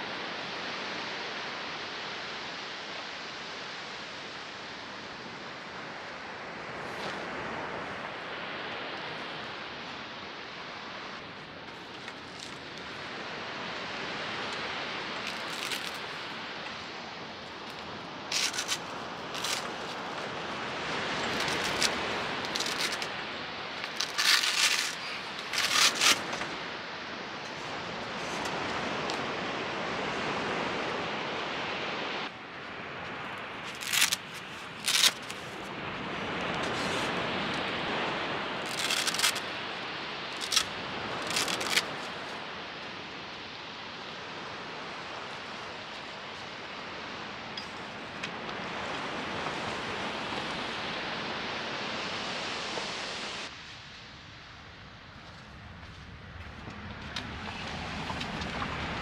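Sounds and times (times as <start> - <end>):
surf washing onto beach: 0.0 - 54.8, 55.6 - 59.0
sharp rustling scrapes: 15.2 - 16.2, 17.7 - 20.4, 21.1 - 23.2, 23.8 - 26.5, 33.7 - 35.6, 36.6 - 37.2, 38.6 - 39.5, 40.4 - 42.4.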